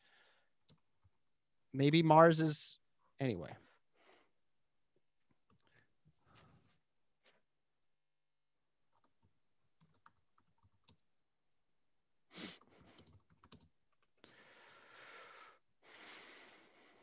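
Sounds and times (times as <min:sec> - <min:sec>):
computer keyboard typing: 0:08.9 - 0:11.0, 0:12.6 - 0:13.8
long breath: 0:14.2 - 0:17.0.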